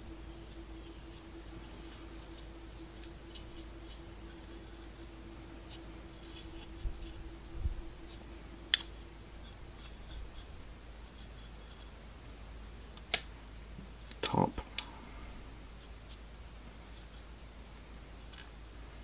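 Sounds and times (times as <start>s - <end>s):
paintbrush scratching: 0.0s - 12.0s, 15.8s - 17.4s.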